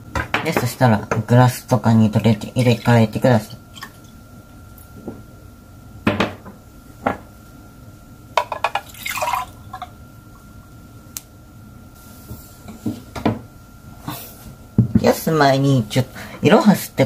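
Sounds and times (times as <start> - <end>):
glasses knocking on table: 6.1 - 7.2
liquid pouring into glass: 8.6 - 9.9.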